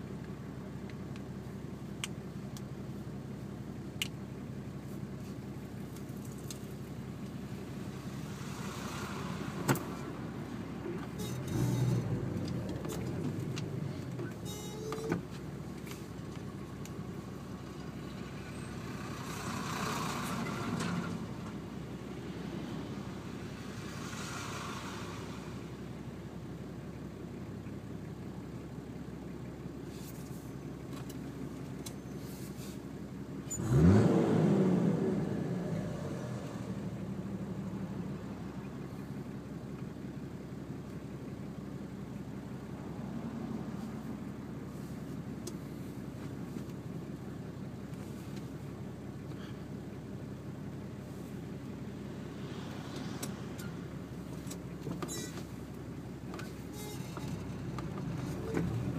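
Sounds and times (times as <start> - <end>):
diesel engine idling: 0.0 - 34.0, 36.6 - 58.9
vehicle passing: 8.0 - 10.8, 51.2 - 54.4.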